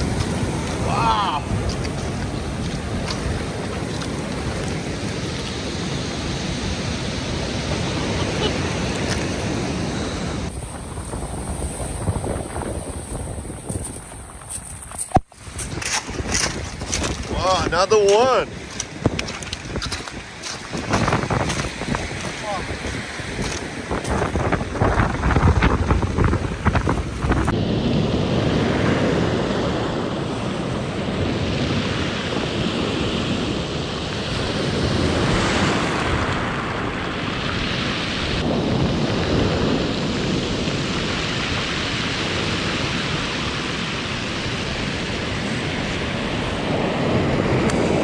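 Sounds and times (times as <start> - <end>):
surf washing up a cobble beach: 0.0 - 48.0
wind buffeting microphone: 0.0 - 48.0.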